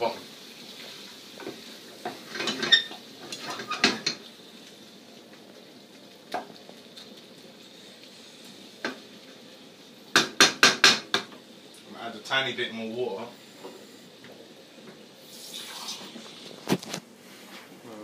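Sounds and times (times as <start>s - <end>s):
curry sizzling faintly: 0.0s - 18.0s
wooden spoon knocking pan: 10.1s - 11.4s.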